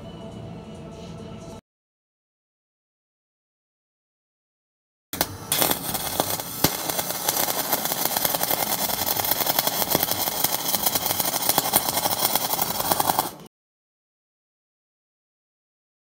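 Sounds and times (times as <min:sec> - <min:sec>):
welding arc crackle and hiss: 0:05.2 - 0:13.5.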